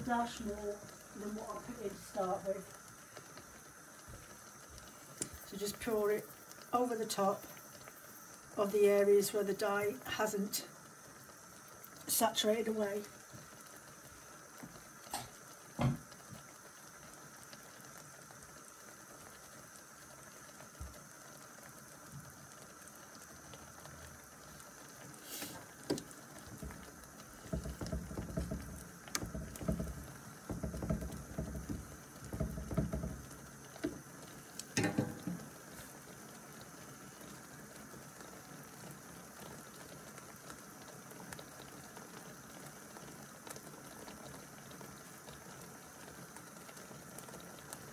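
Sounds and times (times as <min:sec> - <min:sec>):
liquid simmering and bubbling: 0:00.0 - 0:47.9
metal clicks on tray: 0:34.6 - 0:35.4.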